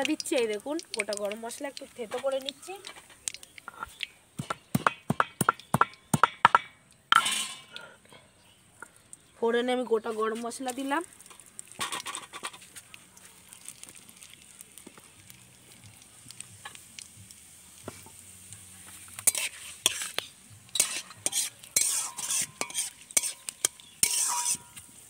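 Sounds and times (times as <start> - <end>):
spices sizzling in hot oil: 0.0 - 7.8, 8.4 - 25.0
metal spatula scraping pan: 19.2 - 25.0.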